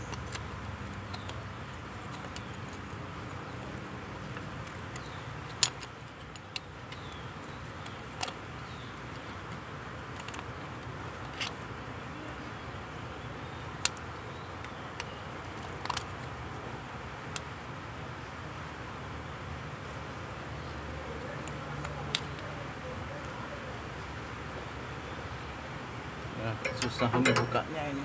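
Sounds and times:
steel rod clicking on metal: 0:26.6 - 0:27.6.

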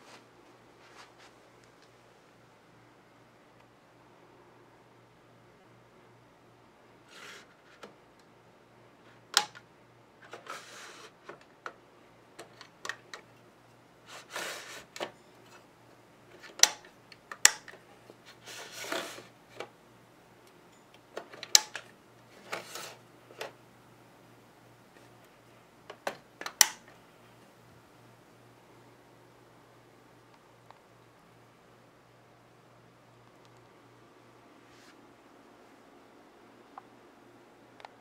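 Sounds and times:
faint low hum: 0:00.0 - 0:38.0
plastic parts clicking: 0:12.4 - 0:13.3, 0:16.4 - 0:17.8, 0:21.2 - 0:23.6, 0:25.9 - 0:27.0.

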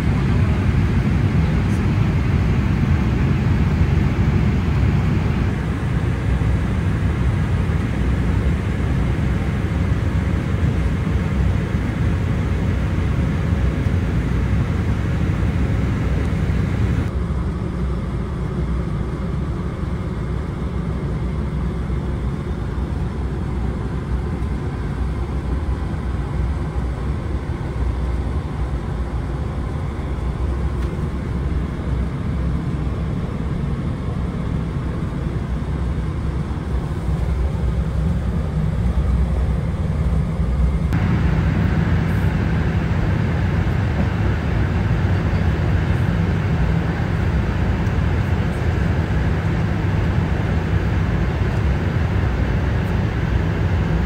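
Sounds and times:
airliner cabin engine rumble: 0:00.0 - 0:54.0
cabin airflow hiss: 0:29.0 - 0:54.0.

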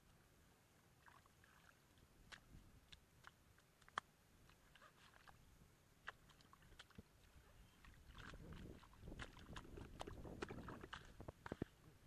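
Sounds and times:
hand squelching in mud: 0:06.0 - 0:11.8.

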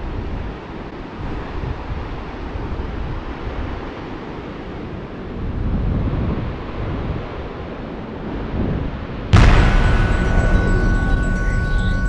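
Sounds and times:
ocean surf: 0:09.4 - 0:12.0.

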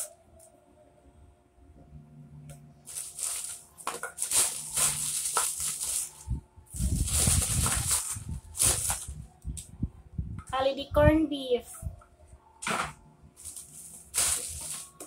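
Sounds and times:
plastic wrappers crinkling: 0:02.9 - 0:09.2, 0:13.4 - 0:15.0.

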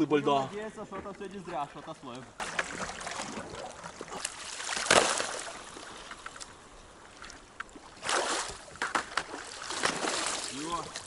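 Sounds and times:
water sloshing and splashing: 0:00.9 - 0:11.0
light clicks and knocks of ice: 0:07.2 - 0:11.0.

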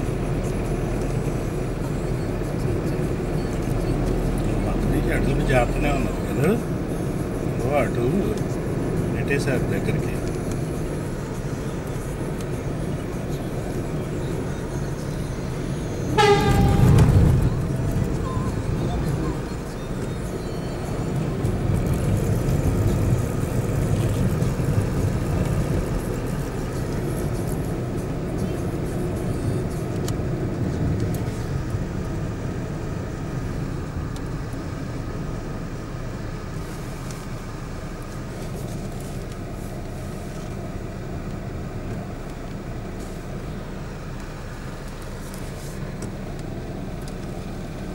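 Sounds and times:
passing traffic: 0:00.0 - 0:47.9
vehicle engine and road rumble: 0:00.0 - 0:47.9
lorry passing close: 0:15.4 - 0:27.4.

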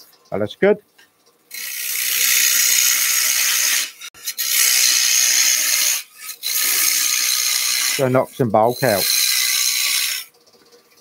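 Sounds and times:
gouge hissing on spinning wood: 0:01.5 - 0:10.3.

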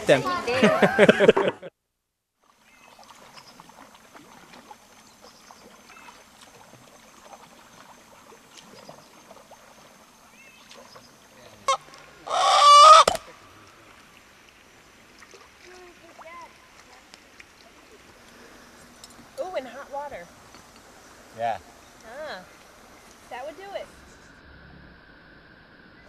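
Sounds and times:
faint outdoor background: 0:00.0 - 0:26.0
chicken squawk: 0:11.7 - 0:13.2.

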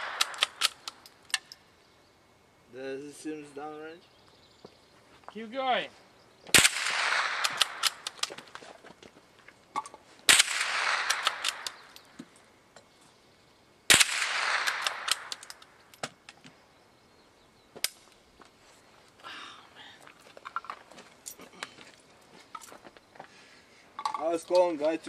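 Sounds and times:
gunshots: 0:00.0 - 0:00.9, 0:06.5 - 0:08.2, 0:10.3 - 0:11.9, 0:13.9 - 0:15.6
short sharp crack: 0:06.5 - 0:08.3, 0:10.3 - 0:12.0.

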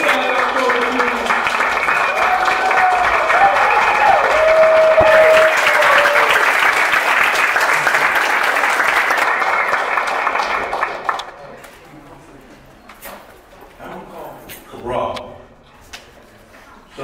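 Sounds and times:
people cheering: 0:00.0 - 0:11.3
crowd applauding: 0:00.0 - 0:11.4.

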